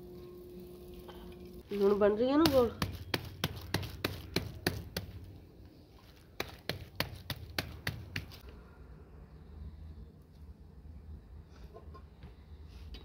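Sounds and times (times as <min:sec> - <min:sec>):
wet hands slapping dough: 0:02.3 - 0:05.3, 0:06.0 - 0:08.4.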